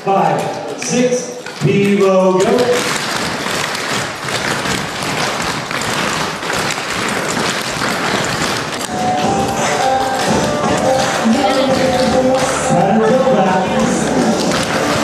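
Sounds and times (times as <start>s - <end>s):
tap shoes clattering on stage: 0.2s - 15.0s
music: 8.9s - 15.0s.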